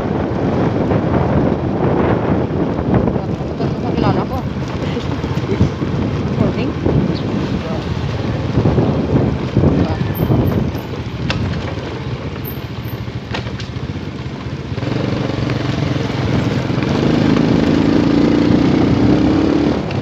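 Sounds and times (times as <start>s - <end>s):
small motorcycle engine running: 9.9s - 20.0s.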